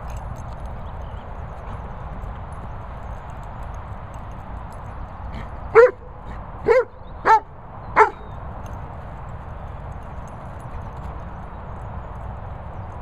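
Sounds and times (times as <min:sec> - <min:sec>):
dog barking: 0:05.8 - 0:06.0, 0:06.6 - 0:07.4, 0:08.0 - 0:08.2.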